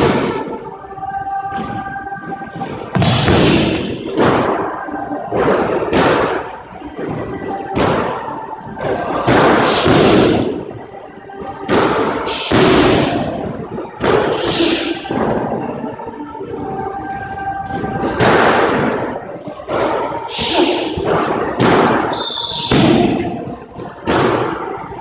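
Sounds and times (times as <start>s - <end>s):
heavy thuds echoing in a court: 1.5s - 15.7s, 16.8s - 24.9s.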